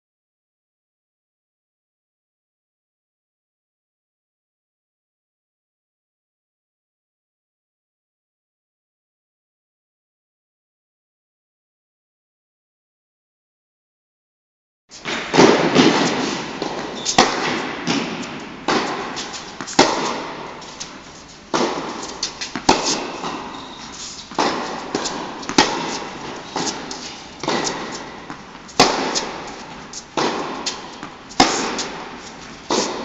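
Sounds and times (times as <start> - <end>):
ball bouncing on hard court: 15.0 - 33.0
racket striking tennis ball: 15.0 - 33.0.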